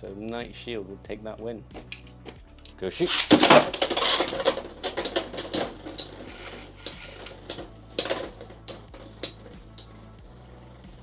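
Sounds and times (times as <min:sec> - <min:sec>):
spinning tops clacking in plastic stadium: 0:01.8 - 0:10.0.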